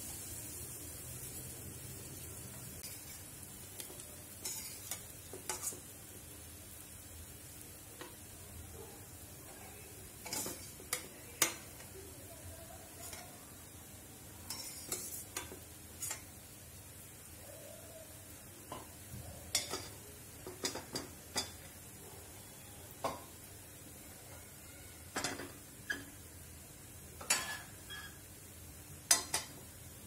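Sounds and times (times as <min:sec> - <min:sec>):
oil sizzling faintly: 0:00.0 - 0:30.0.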